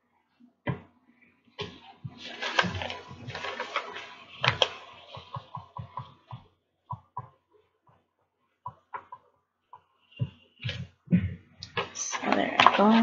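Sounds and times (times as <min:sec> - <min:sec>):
paper crinkling and rustling: 0:01.6 - 0:06.3.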